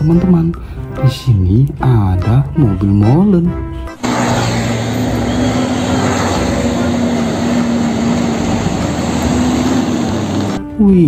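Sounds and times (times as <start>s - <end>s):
broad road noise: 4.0s - 10.7s
truck engine drone: 4.0s - 10.7s.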